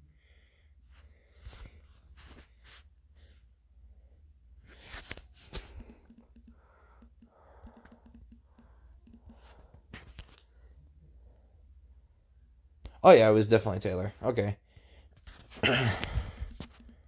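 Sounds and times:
fingers tapping phone touchscreen: 4.8s - 10.5s.

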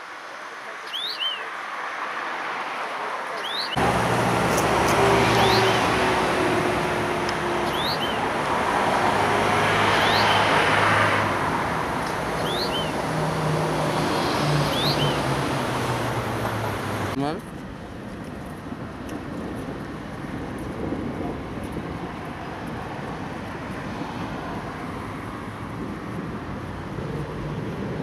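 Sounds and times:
road traffic rumble: 0.0s - 28.0s
songbird short rising call: 12.4s - 13.0s.

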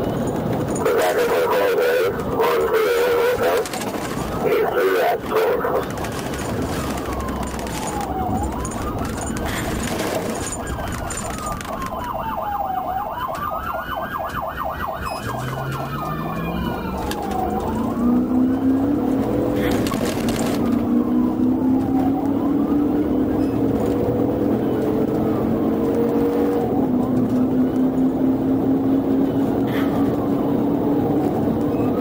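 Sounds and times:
car engine and road noise: 0.0s - 32.0s
police siren wailing: 0.5s - 32.0s
fast pulsing siren tone: 6.7s - 19.1s.

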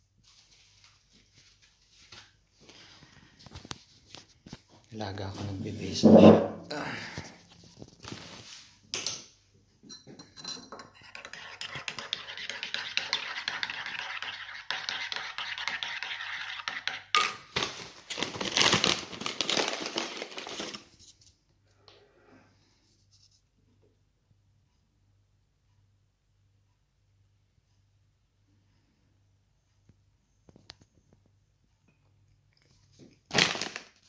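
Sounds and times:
spoon stirring in ceramic mug: 9.9s - 17.4s.

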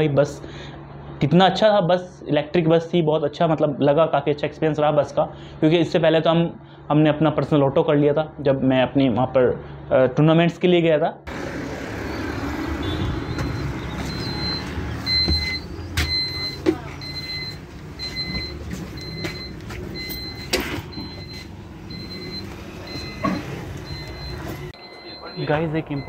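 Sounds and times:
electric bus humming: 11.3s - 26.0s
short high electronic beep: 24.2s - 26.0s.

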